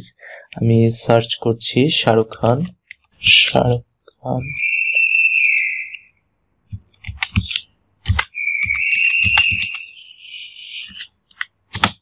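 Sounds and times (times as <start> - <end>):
keyboard keystroke clicks: 6.7 - 9.8, 11.4 - 12.0.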